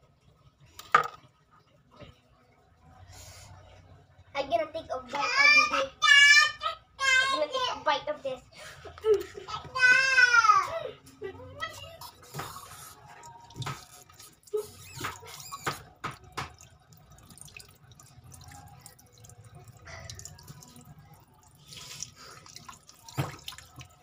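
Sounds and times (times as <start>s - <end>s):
water dripping at a sink: 11.5s - 24.0s.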